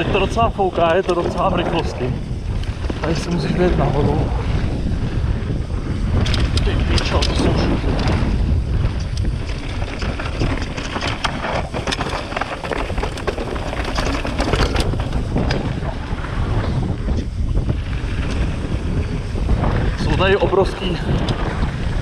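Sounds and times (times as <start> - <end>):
wind buffeting microphone: 0.0 - 22.0
bike rattling over rocks: 5.8 - 20.0.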